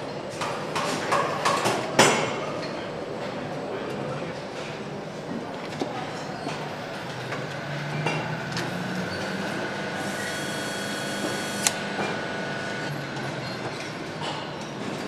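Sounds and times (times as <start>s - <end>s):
high whine: 7.5s - 13.0s
sharp click: 11.6s - 11.8s.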